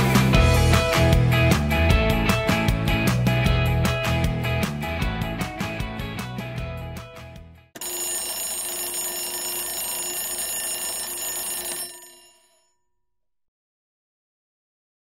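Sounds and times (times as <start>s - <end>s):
alarm bell ringing: 7.8s - 12.7s.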